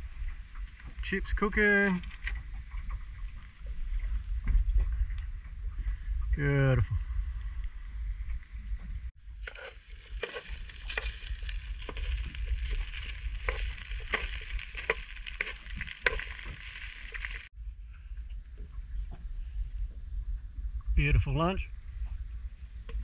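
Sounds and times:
wind rumble on microphone: 0:00.0 - 0:23.0
chips sizzling in oil: 0:12.4 - 0:17.5.

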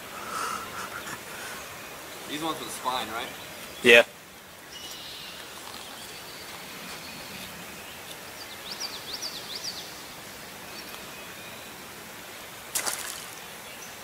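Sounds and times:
creek water flowing: 0:00.0 - 0:14.0.

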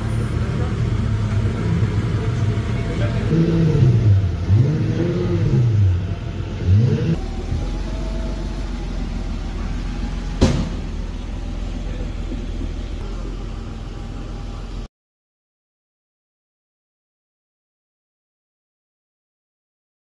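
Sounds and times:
sports car engine revving: 0:00.0 - 0:14.8.

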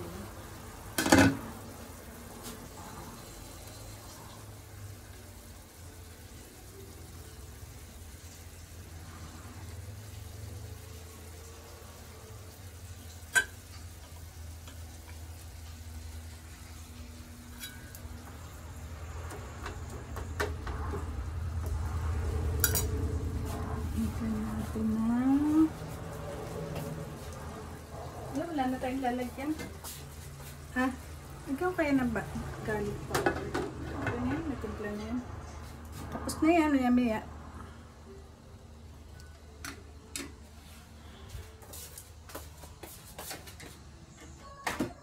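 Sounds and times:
sauce simmering in a frying pan: 0:00.0 - 0:35.0.

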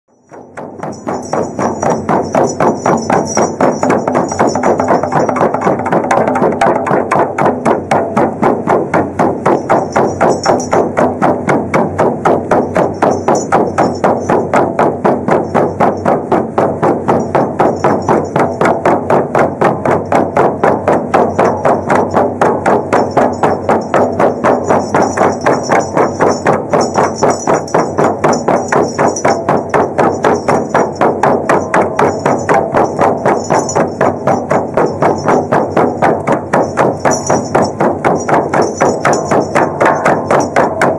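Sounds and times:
frame drums beating: 0:00.2 - 0:40.9.

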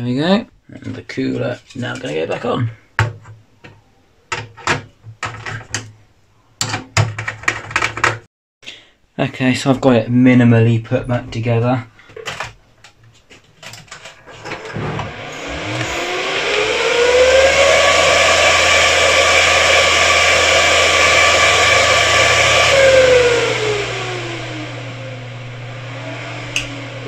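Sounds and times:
server cooling fans whining: 0:14.1 - 0:27.0.

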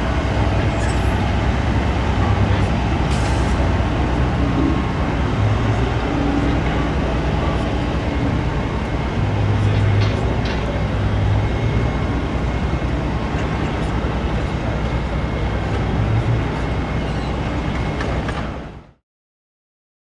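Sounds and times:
diesel truck engine humming: 0:00.0 - 0:18.8.

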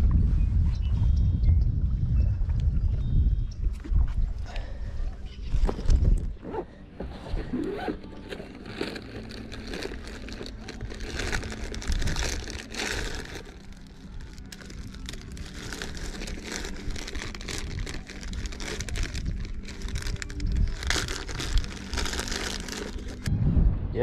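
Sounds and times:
wind rumble on microphone: 0:00.0 - 0:24.0
plastic packaging crinkling: 0:07.8 - 0:23.3.

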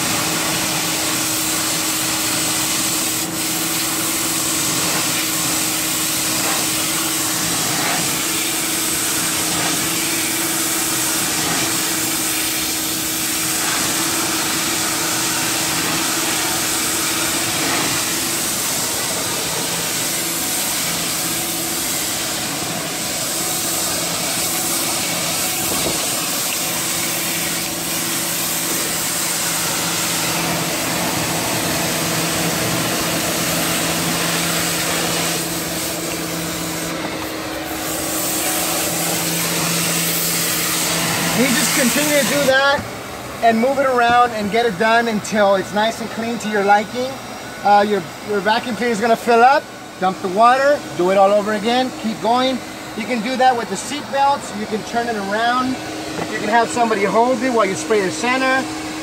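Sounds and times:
water spray hissing on metal: 0:00.0 - 0:42.8
pressure washer motor hum: 0:00.0 - 0:59.0
shop vac sucking water: 0:00.0 - 0:59.0.

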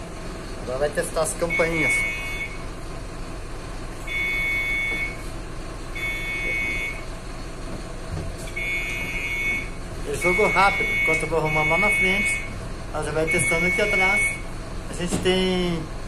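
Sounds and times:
steady low hum: 0:00.0 - 0:16.0
bus stop-request bell buzzers: 0:01.4 - 0:02.7, 0:04.0 - 0:05.3, 0:05.9 - 0:07.1, 0:08.5 - 0:12.6, 0:13.2 - 0:14.6.

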